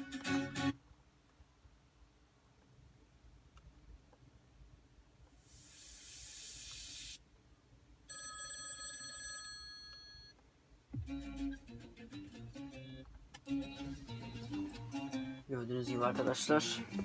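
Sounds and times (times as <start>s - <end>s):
plucked-string music: 0.0s - 0.8s, 10.9s - 17.0s
telephone ringing: 8.1s - 10.4s.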